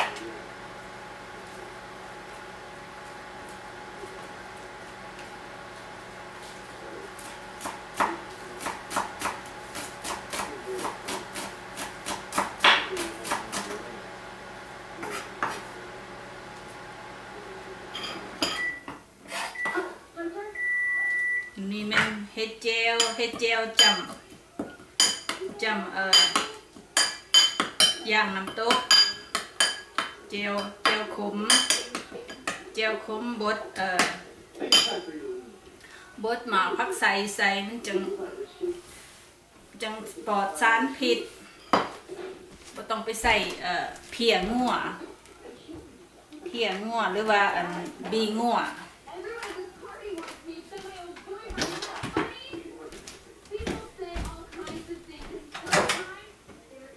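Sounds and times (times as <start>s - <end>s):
knife chopping on wooden board: 7.2s - 13.7s, 15.0s - 15.6s.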